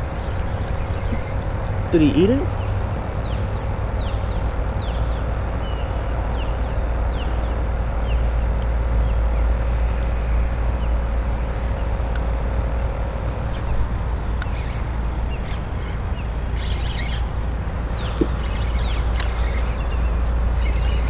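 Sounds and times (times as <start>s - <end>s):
bird chirping: 0.0s - 1.4s, 14.4s - 17.3s, 17.9s - 21.0s
faint constant hum: 0.0s - 21.0s
steady low rumble: 0.0s - 21.0s.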